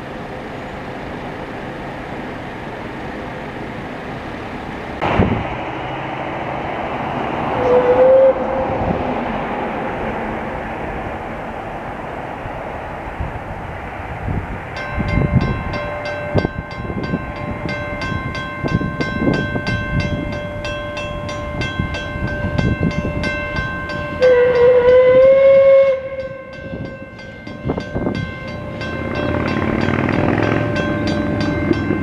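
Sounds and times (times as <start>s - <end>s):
steam locomotive whistle: 7.2s - 9.0s, 24.1s - 27.3s
level crossing bells ringing: 14.8s - 25.2s, 26.0s - 32.0s.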